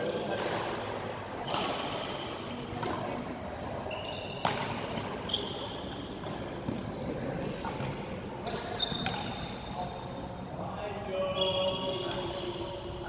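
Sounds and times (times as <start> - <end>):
racket hitting shuttlecock: 0.2 - 3.3, 4.3 - 6.8, 7.4 - 9.6
shoes squeaking on court floor: 3.7 - 10.1, 11.2 - 13.0.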